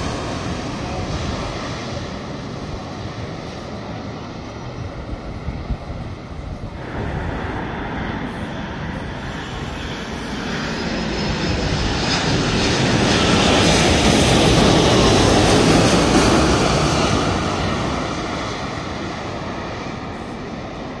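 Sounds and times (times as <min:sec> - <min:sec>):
faint high whine: 0:00.0 - 0:12.4
jet engines roaring overhead: 0:00.0 - 0:21.0.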